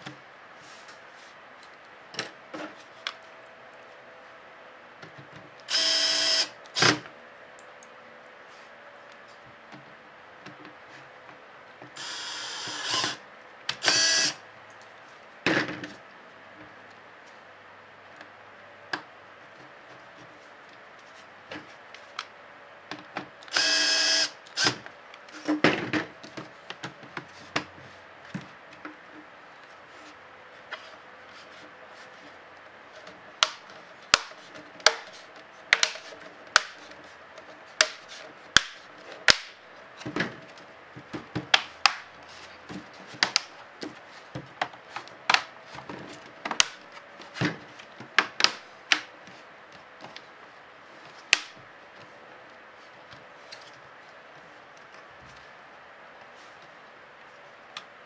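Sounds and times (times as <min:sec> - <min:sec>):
small motor whirring: 0:05.7 - 0:06.9, 0:12.0 - 0:13.2, 0:13.8 - 0:14.4, 0:23.5 - 0:24.8.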